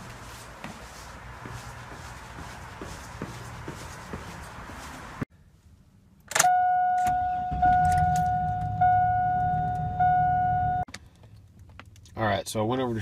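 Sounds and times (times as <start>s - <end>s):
car engine starting and idling: 6.2s - 12.1s
dashboard warning chime: 6.4s - 10.9s.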